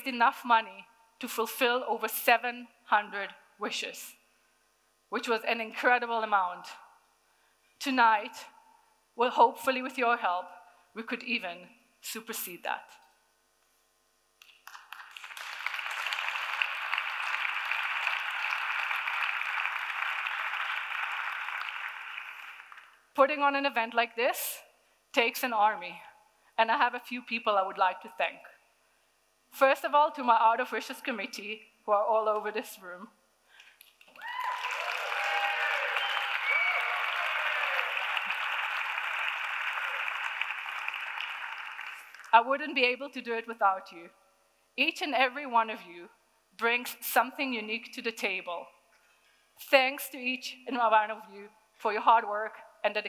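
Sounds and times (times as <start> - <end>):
audience applauding: 14.6 - 23.0, 34.0 - 42.3.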